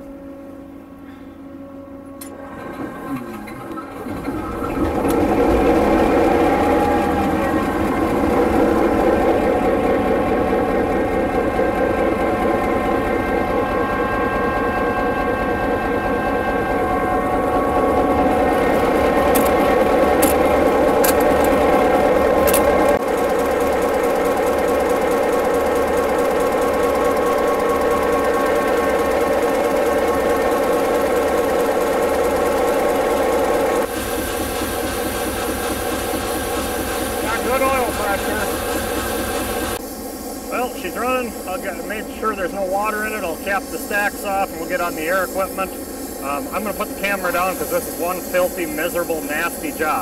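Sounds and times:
diesel locomotive engine running: 0.0 - 50.0
sharp clicks: 20.2 - 20.4, 22.4 - 22.9.

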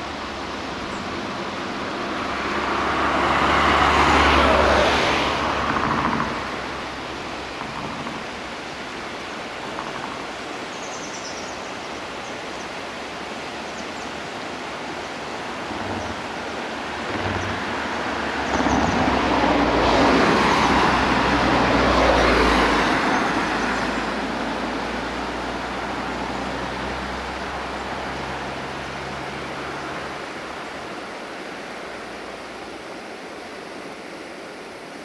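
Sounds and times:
road vehicle passing: 0.0 - 10.6, 12.8 - 34.0.

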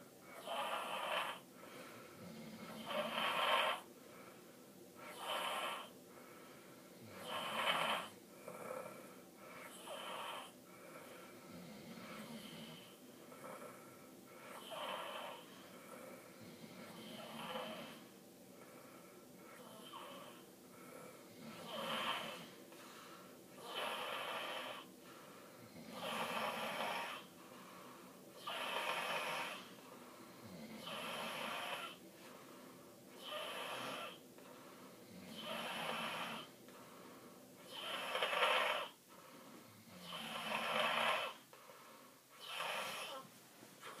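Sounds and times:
child snoring: 0.3 - 1.5, 2.2 - 3.9, 5.0 - 6.0, 7.0 - 18.1, 19.4 - 20.4, 21.0 - 22.6, 23.6 - 25.0, 25.6 - 27.4, 28.4 - 29.8, 30.4 - 32.0, 33.1 - 34.3, 35.1 - 36.6, 37.6 - 39.0, 39.8 - 41.5, 42.3 - 44.0.

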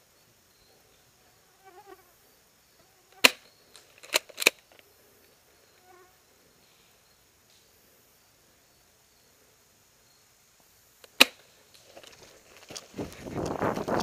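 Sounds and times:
airsoft gun shots: 3.2 - 3.5, 11.0 - 11.4.

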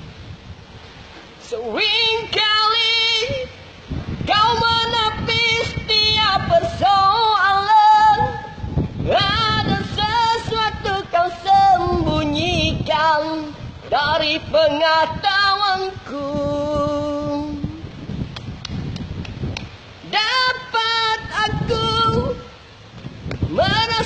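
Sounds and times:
man singing unaccompanied: 4.3 - 17.8.

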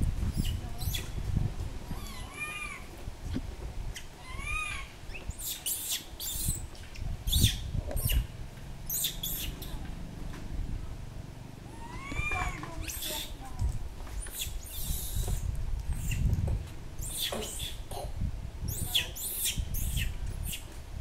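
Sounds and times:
macaque high calls: 0.4 - 1.2, 2.0 - 2.9, 3.9 - 6.6, 8.9 - 9.8, 11.7 - 13.4, 14.2 - 16.3, 17.0 - 18.1, 18.7 - 20.7.

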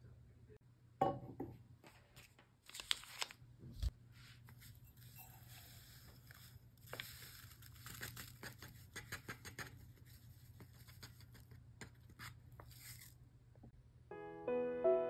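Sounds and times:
paper packet rustling: 2.1 - 3.9, 5.7 - 8.8.

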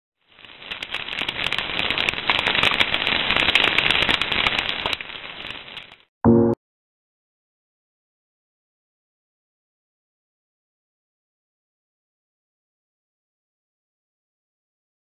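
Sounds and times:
fire crackling: 0.2 - 6.1
loud pitched tone: 6.2 - 6.6.

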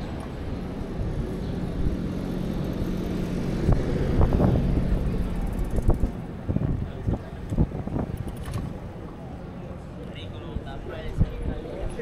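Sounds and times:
street traffic: 0.0 - 12.0
vehicle engine humming: 0.0 - 12.0.

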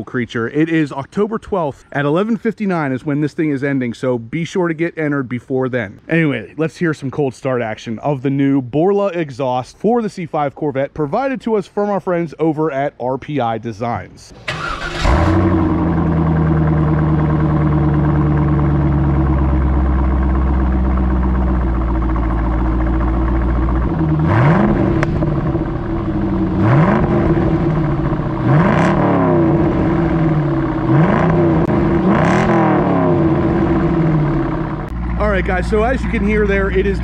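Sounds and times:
car engine idling: 14.3 - 37.0
car engine revving: 14.4 - 37.0.

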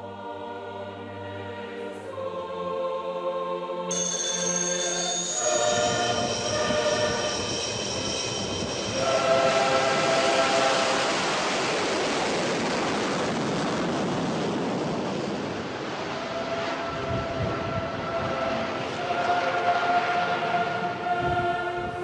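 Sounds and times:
steady sustained tones: 0.0 - 12.7, 15.9 - 22.0
jet engine roar: 5.4 - 21.1.

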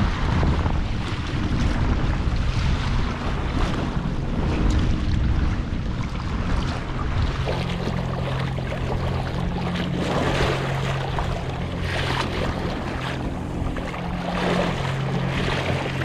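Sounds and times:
water splashing against hull: 0.0 - 16.0
wind buffeting microphone: 0.0 - 16.0
electric trolling motor hum: 0.5 - 16.0.

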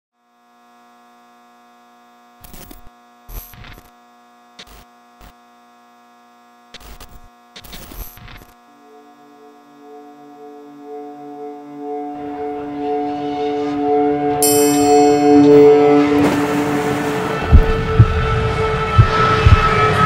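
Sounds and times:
electronic mains hum: 0.2 - 20.0
crackling static glitch bursts: 2.4 - 5.4, 6.7 - 8.6
held musical tones: 8.8 - 20.0.

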